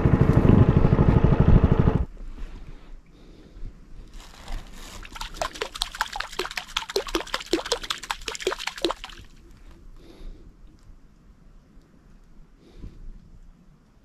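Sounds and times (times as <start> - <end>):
small splashes at water surface: 4.2 - 9.6.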